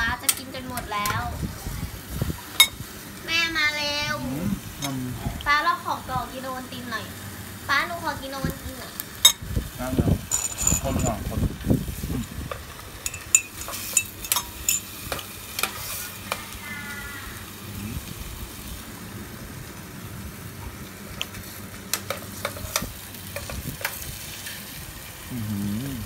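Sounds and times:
ham sizzling in a pan: 0:00.0 - 0:26.0
spoon clinking against ceramic mug: 0:10.3 - 0:11.2, 0:13.0 - 0:14.9.

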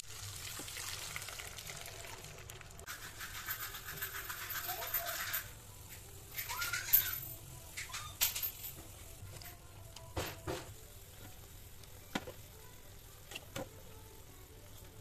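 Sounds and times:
broth bubbling in a pan: 0:00.0 - 0:08.2.

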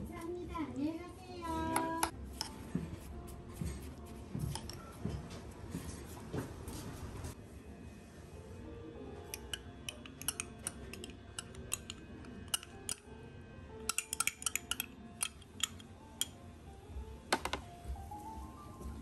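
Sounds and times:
metal spoon clinking on bowl: 0:09.3 - 0:13.1, 0:13.8 - 0:16.4.

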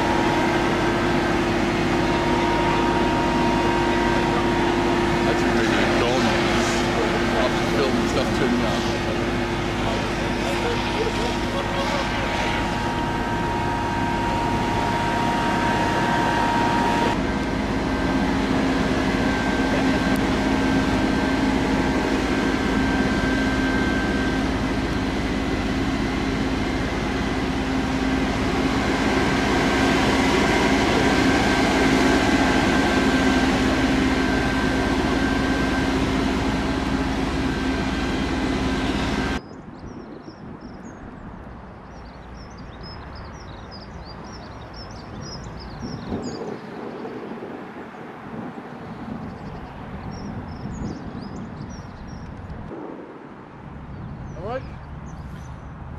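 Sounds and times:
fire engine pumps droning: 0:00.0 - 0:39.5, 0:41.8 - 0:53.2
birds chirping: 0:29.2 - 0:52.7, 0:53.8 - 0:55.8.

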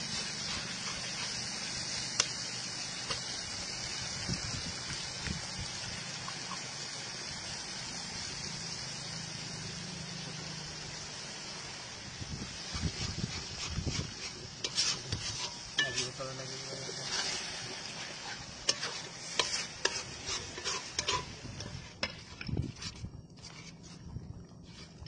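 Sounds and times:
metal spatula scraping pan: 0:00.0 - 0:01.9, 0:12.6 - 0:16.3, 0:16.9 - 0:24.0
sauce sizzling: 0:00.0 - 0:22.8.

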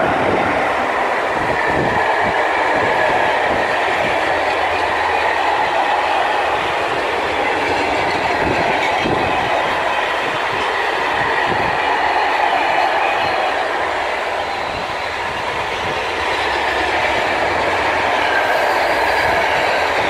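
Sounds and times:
freight train wagons rolling past: 0:00.0 - 0:20.0.

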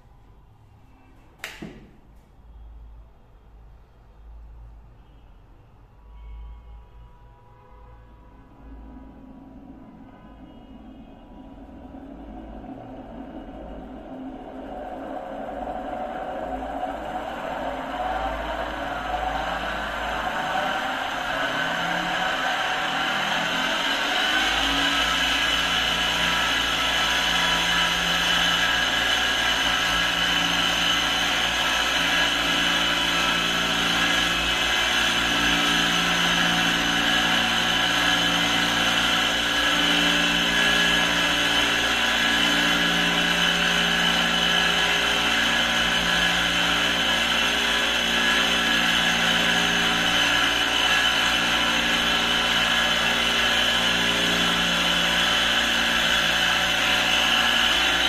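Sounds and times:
low hum: 0:08.6 - 0:58.0
electric motor whirring: 0:14.6 - 0:58.0.

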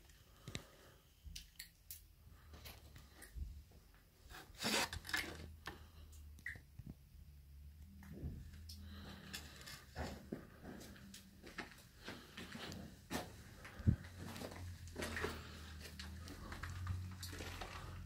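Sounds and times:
loud scrape: 0:04.3 - 0:05.5.

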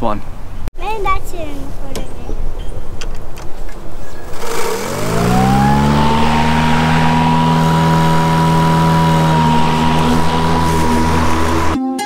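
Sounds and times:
electric mower motor whine: 0:04.2 - 0:11.8.

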